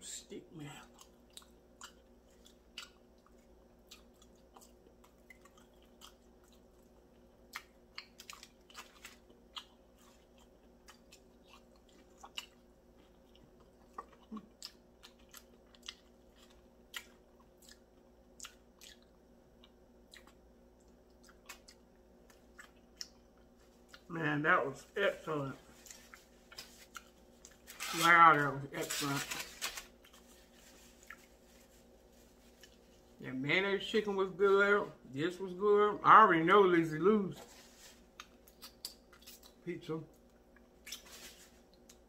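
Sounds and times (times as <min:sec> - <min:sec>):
faint steady hum: 0:00.0 - 0:42.0
chewing and lip smacking: 0:00.9 - 0:24.1, 0:31.0 - 0:31.4, 0:38.1 - 0:41.1.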